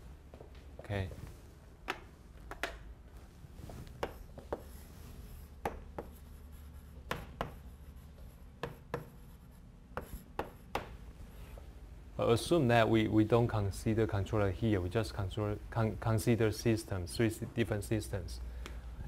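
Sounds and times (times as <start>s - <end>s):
chalk scratching strokes: 3.6s - 11.4s
chalk tapping on chalkboard: 3.9s - 4.8s, 5.6s - 11.0s.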